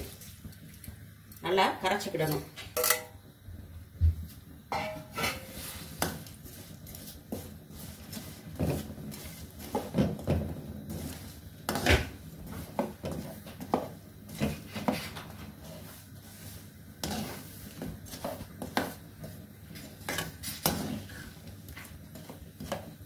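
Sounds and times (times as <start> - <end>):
metal spatula scraping metal pan: 4.7 - 6.0, 17.0 - 18.8, 19.8 - 21.3.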